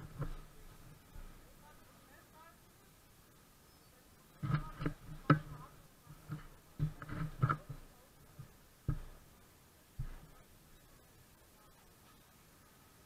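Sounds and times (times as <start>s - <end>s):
irregular knocks and thumps: 0.0s - 1.4s, 4.4s - 9.3s, 10.0s - 10.5s.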